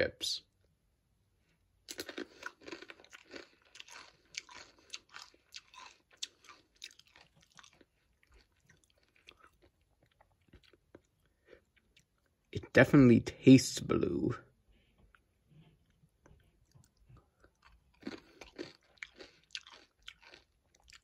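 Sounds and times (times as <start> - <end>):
chip being chewed crunching: 1.9 - 12.5, 15.9 - 21.0.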